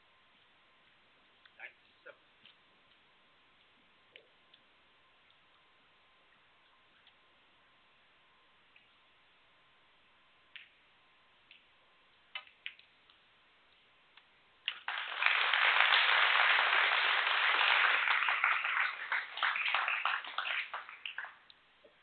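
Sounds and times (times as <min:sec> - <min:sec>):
audience applause: 0:14.7 - 0:21.4.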